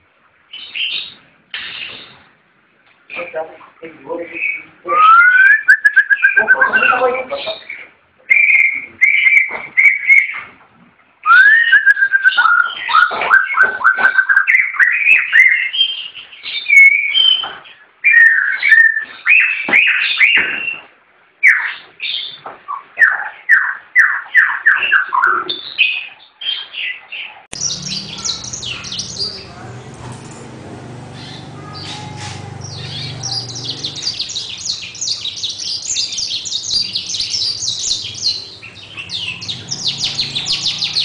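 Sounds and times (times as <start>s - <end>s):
songbird singing: 3.1s - 10.5s, 21.4s - 41.0s.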